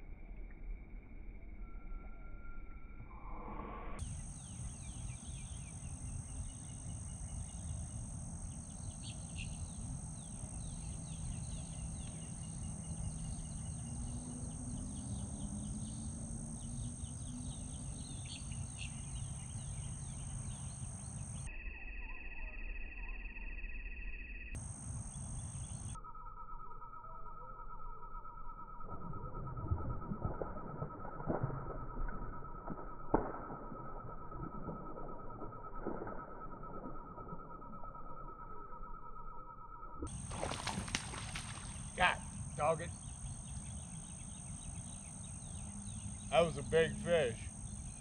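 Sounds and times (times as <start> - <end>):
birds chirping: 4.0 - 21.5, 24.7 - 26.0, 40.1 - 48.0.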